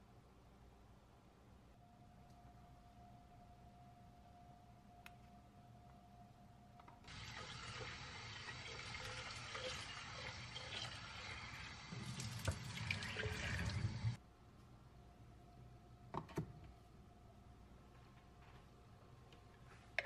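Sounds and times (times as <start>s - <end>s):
water splashing into sink: 7.1s - 14.2s
tap running into steel sink: 12.0s - 13.8s.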